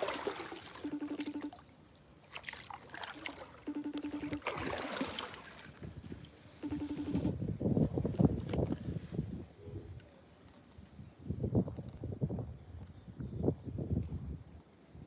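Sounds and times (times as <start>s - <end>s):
kayak paddling: 0.0s - 9.0s
short buzzing: 6.6s - 7.4s.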